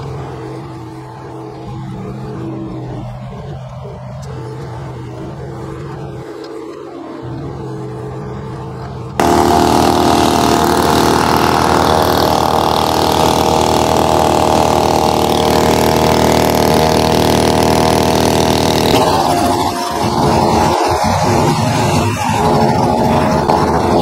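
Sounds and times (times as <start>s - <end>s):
leaf blower running: 0.0s - 24.0s.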